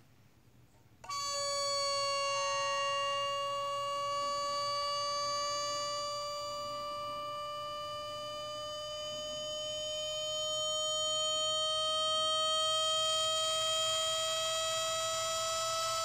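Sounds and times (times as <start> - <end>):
air compressor whine: 1.0 - 16.0.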